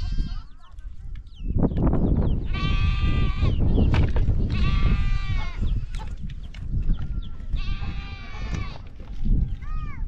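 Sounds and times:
goats bleating: 0:00.0 - 0:00.6, 0:02.4 - 0:03.7, 0:04.4 - 0:06.1, 0:07.3 - 0:09.0.

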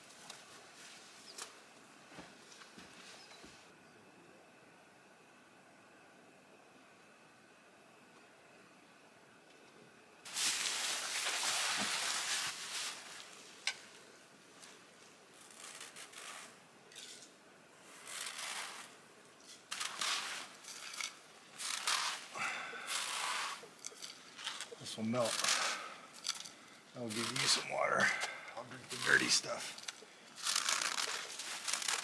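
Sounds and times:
snow crunching: 0:10.2 - 0:14.0, 0:17.8 - 0:19.0, 0:19.6 - 0:32.0
hands scraping snow off stone: 0:10.3 - 0:13.3, 0:17.9 - 0:19.0, 0:19.6 - 0:25.9.

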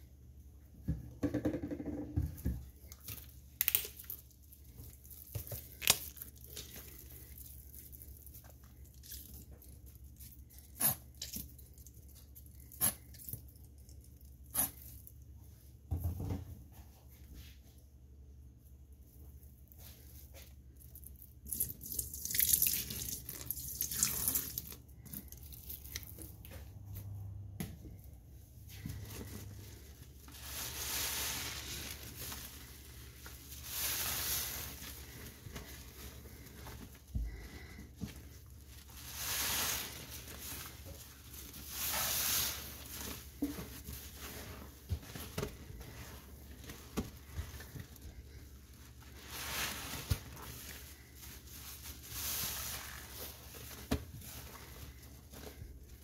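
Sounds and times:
soapy sponge squeezed: 0:20.8 - 0:26.5, 0:28.8 - 0:56.0
water dripping: 0:21.5 - 0:24.8.

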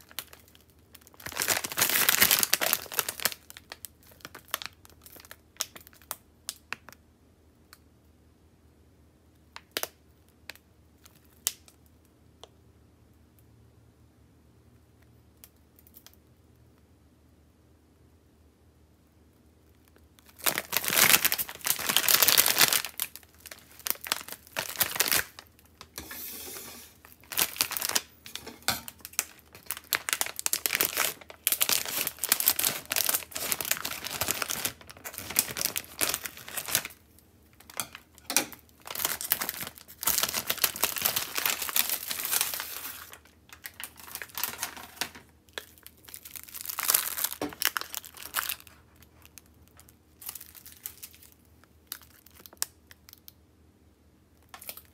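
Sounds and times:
plastic packaging crinkling: 0:00.0 - 0:07.0, 0:19.6 - 0:53.4, 0:54.4 - 0:54.9.

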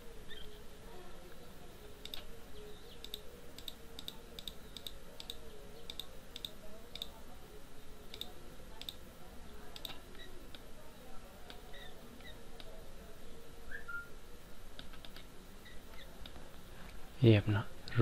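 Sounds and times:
faint background hum: 0:00.0 - 0:18.0
computer mouse clicking: 0:02.0 - 0:02.3, 0:03.0 - 0:07.2, 0:08.1 - 0:09.0, 0:09.7 - 0:10.7, 0:11.5 - 0:12.7, 0:14.8 - 0:15.3, 0:15.9 - 0:16.4.

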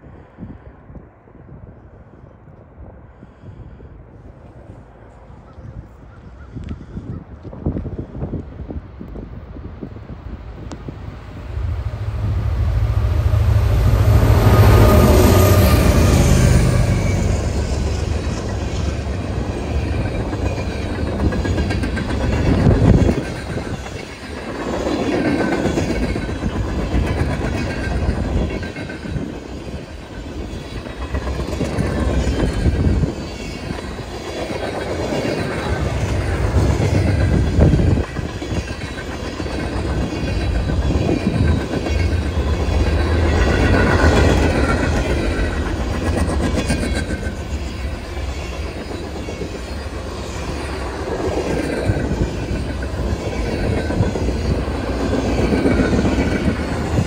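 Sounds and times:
freight train rumbling past: 0:00.0 - 0:57.0.

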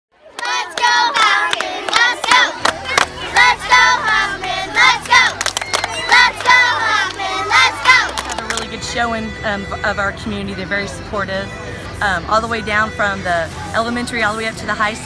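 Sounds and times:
children shouting and cheering: 0:00.2 - 0:08.8
hand claps: 0:00.4 - 0:03.5, 0:05.0 - 0:07.2, 0:07.8 - 0:08.7.

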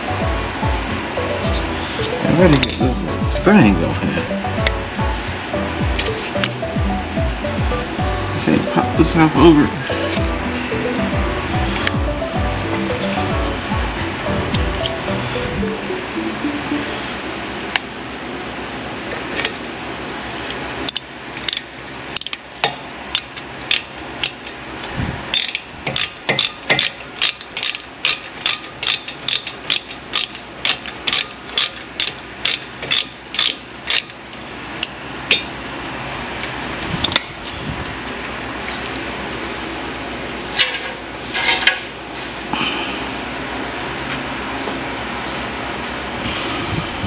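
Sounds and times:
hand ratchet clicking: 0:25.3 - 0:34.1.

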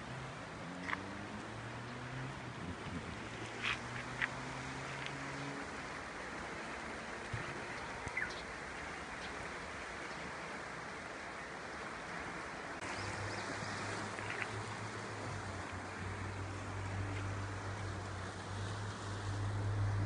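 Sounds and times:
river water rushing: 0:00.0 - 0:20.0
bird chirps: 0:08.1 - 0:08.4.

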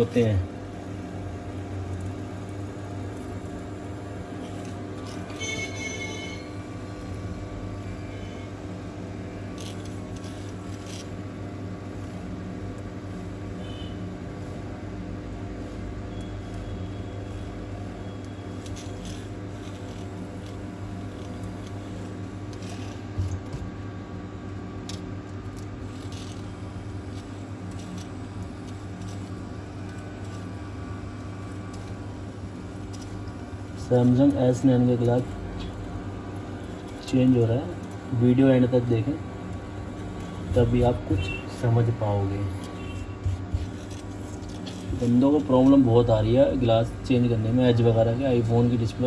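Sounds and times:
electrical equipment hum: 0:00.0 - 0:49.0
wire tool scraping glass: 0:04.4 - 0:07.3, 0:09.5 - 0:11.2, 0:16.1 - 0:23.1, 0:24.9 - 0:30.7, 0:42.6 - 0:46.0.

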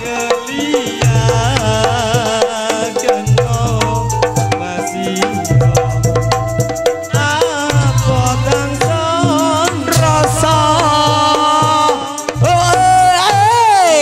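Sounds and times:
hand drum rhythm: 0:00.0 - 0:14.0
wavering melody line: 0:03.2 - 0:11.4
low bass notes: 0:03.3 - 0:11.1.

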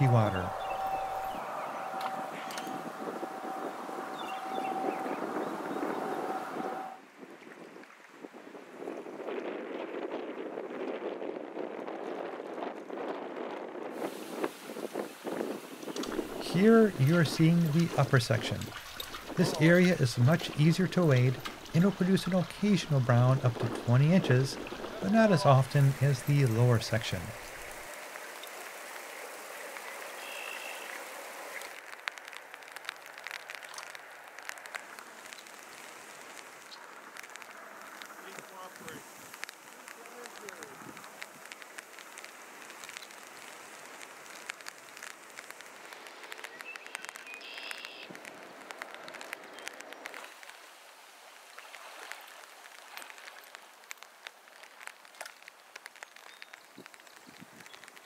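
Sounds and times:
stream water running over rocks: 0:00.0 - 0:07.0, 0:14.0 - 0:58.0
stream water rushing: 0:00.0 - 0:07.0, 0:15.1 - 0:31.9
small water splashes: 0:14.0 - 0:58.0
small sharp ticks: 0:29.6 - 0:58.0.

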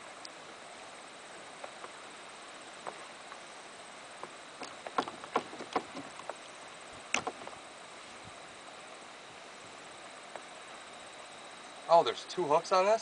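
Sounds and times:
knocks against metal boat: 0:04.6 - 0:06.4.

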